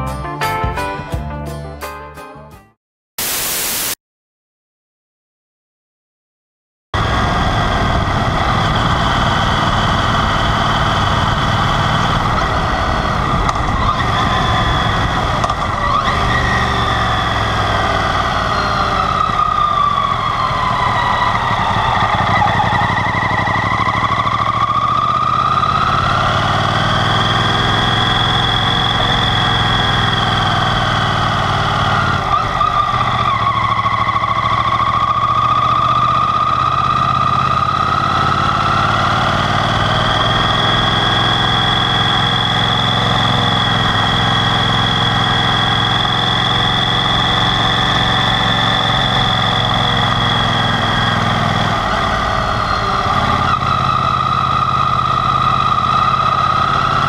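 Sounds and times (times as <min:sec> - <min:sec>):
motorcycle engine running: 0:07.0 - 0:57.0
wind and road rush: 0:07.0 - 0:57.0.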